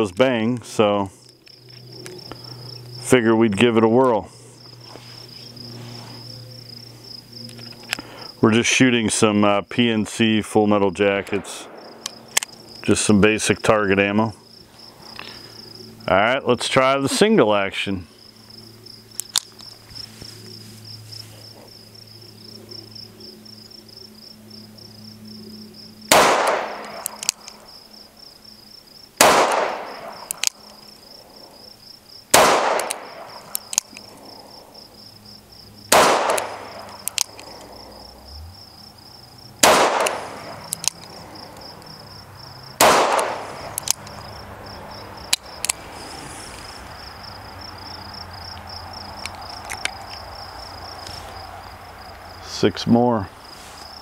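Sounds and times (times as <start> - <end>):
insect trill: 0.0 - 54.0
revolver gunshots: 11.2 - 12.4, 26.1 - 27.3, 29.2 - 30.4, 32.3 - 33.5, 35.9 - 37.4, 39.6 - 40.8, 42.8 - 43.9
revolver hammer cocking clicks: 26.1 - 27.6, 29.2 - 30.8, 32.4 - 34.1, 35.9 - 37.7, 39.6 - 41.9, 42.8 - 44.1.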